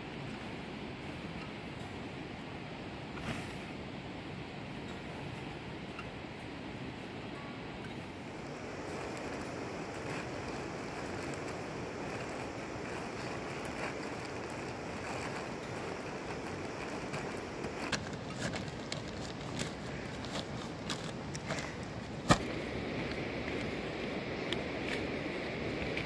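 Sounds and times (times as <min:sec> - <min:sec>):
tent fabric crinkling: 0:08.2 - 0:26.0.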